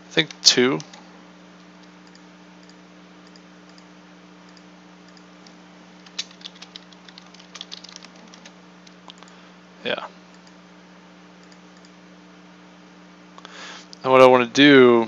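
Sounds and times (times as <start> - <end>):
typing on computer keyboard: 6.0 - 8.5.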